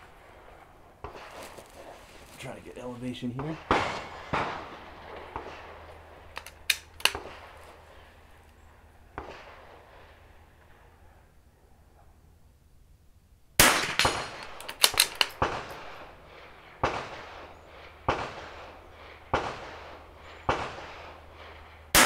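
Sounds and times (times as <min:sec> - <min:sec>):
rifle shots echoing: 0:00.4 - 0:08.4, 0:09.0 - 0:10.7, 0:13.6 - 0:22.0
rifle bolt clicks: 0:06.4 - 0:07.3, 0:13.8 - 0:15.5.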